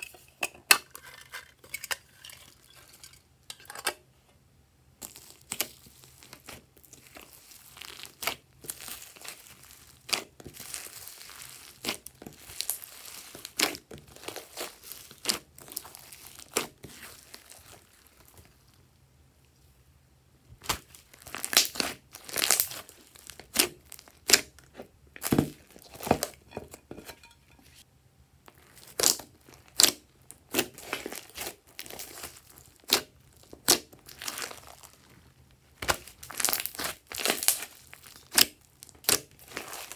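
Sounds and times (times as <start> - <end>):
slime squelching and popping: 5.0 - 18.6, 20.6 - 26.3, 28.5 - 35.2, 35.8 - 39.9.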